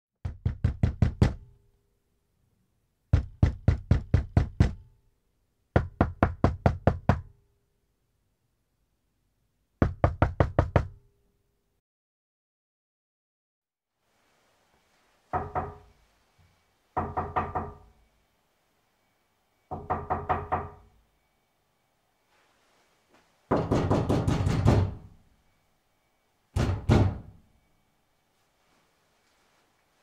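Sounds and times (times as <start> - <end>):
knocking on a door: 0.2 - 1.5, 3.1 - 4.8, 5.8 - 7.3, 9.8 - 11.0, 15.3 - 15.9, 17.0 - 17.9, 19.7 - 20.9, 23.5 - 25.1, 26.6 - 27.4.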